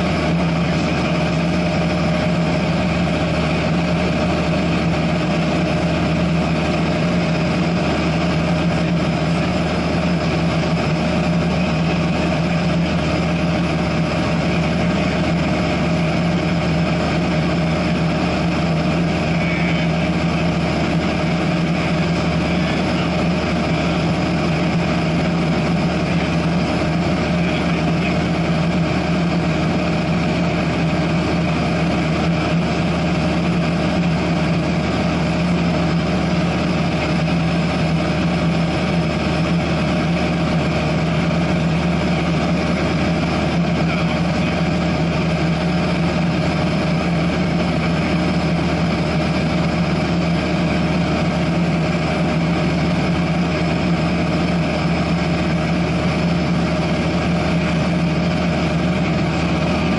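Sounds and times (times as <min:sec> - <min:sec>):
airplane engine drone in cabin: 0:00.0 - 0:59.9.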